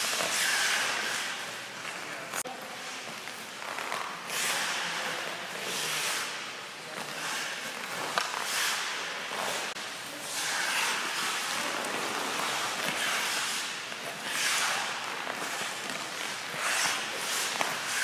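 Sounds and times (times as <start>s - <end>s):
skate blades scraping ice: 0.0s - 18.0s.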